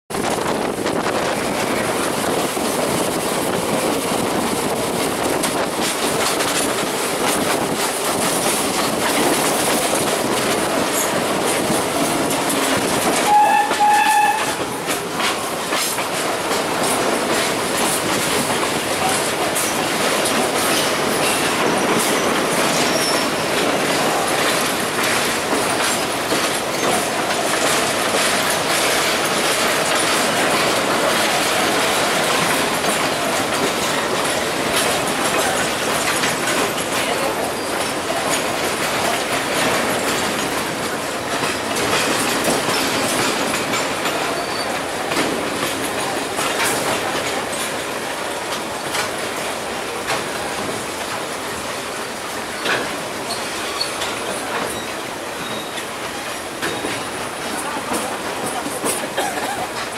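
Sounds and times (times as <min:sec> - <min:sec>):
train wheels clattering on rails: 0:00.1 - 0:59.9
train horn: 0:13.2 - 0:14.8.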